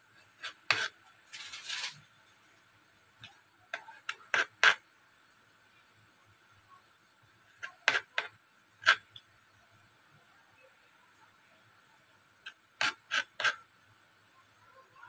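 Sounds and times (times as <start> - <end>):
knife cutting through bread crust: 0.4 - 2.0, 7.6 - 9.0, 12.8 - 13.6.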